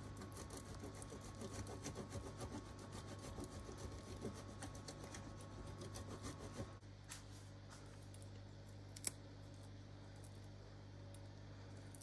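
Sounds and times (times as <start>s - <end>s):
cheese scraping on grater: 0.0s - 6.8s
steady low hum: 0.0s - 12.0s.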